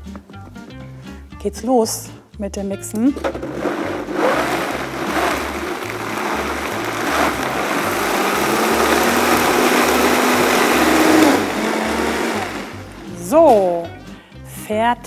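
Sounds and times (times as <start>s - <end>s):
blender motor running: 3.4s - 13.1s.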